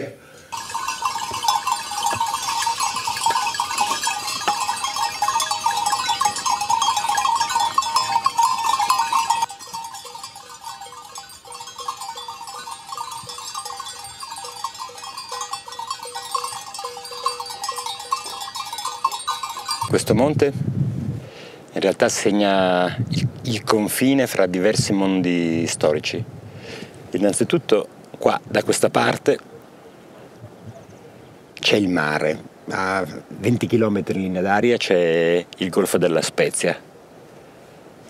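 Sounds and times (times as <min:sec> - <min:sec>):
livestock bells clanking: 0:00.5 - 0:20.5.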